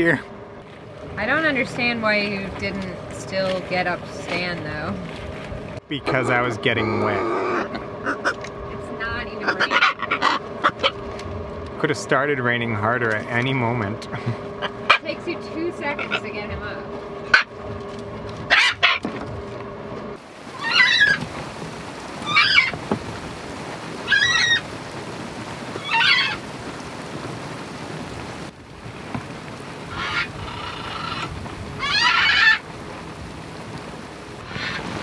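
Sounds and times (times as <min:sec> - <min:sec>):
winch squealing: 0:06.6 - 0:08.4, 0:18.5 - 0:19.1, 0:20.5 - 0:21.2, 0:22.2 - 0:22.8, 0:24.0 - 0:24.7, 0:25.8 - 0:26.4, 0:29.9 - 0:32.6.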